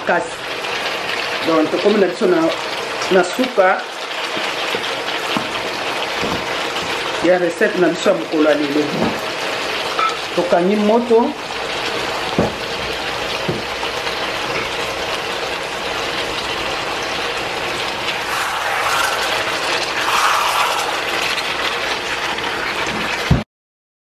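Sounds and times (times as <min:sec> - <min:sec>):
food sizzling in a wok: 0:00.0 - 0:23.4
knock: 0:12.4 - 0:12.6
spatula scraping metal: 0:18.2 - 0:21.5.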